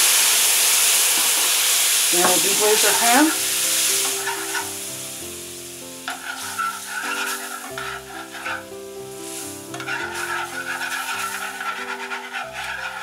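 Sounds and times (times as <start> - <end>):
wine sizzling in a hot pan: 0.0 - 13.0
metal tongs scraping a pan: 2.2 - 4.8, 6.0 - 13.0.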